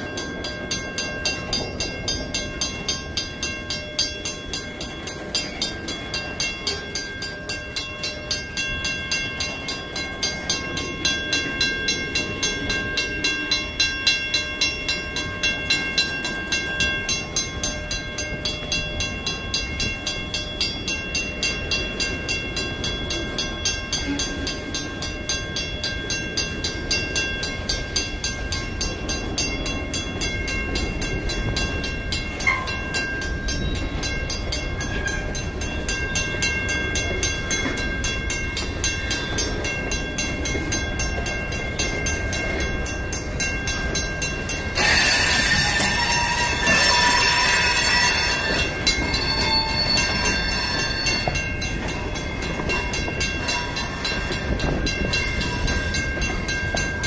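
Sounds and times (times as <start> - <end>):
mechanical crossing bell ringing: 0.0 - 57.0
train wheels rumbling on rail: 0.0 - 57.0
wheel squeal: 44.8 - 51.5.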